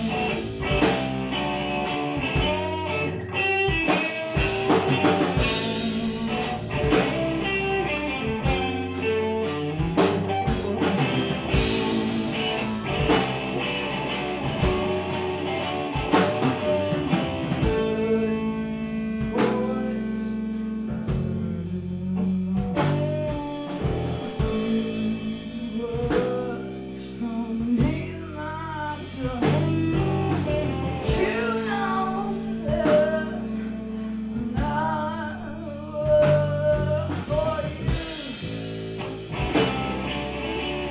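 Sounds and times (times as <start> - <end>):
drum kit and cymbals: 0.0 - 40.9
electric bass: 0.0 - 40.9
electric guitar: 0.0 - 40.9
woman singing: 5.2 - 7.5, 17.6 - 38.5.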